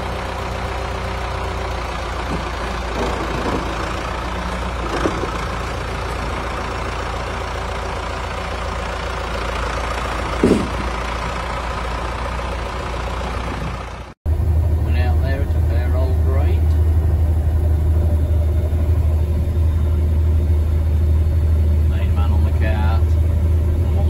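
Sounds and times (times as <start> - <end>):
tractor diesel engine running: 0.0 - 24.0
short knocks: 10.3 - 11.0.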